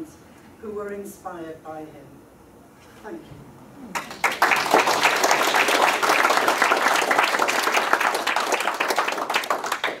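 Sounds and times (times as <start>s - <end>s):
audience applauding: 3.9s - 10.0s.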